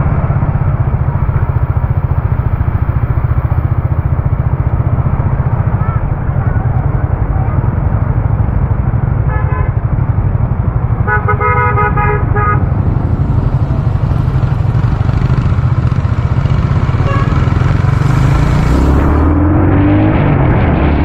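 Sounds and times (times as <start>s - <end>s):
motorcycle engine rumble: 0.0s - 21.0s
vehicle horn honking: 9.3s - 9.8s, 11.0s - 12.7s, 16.9s - 17.6s.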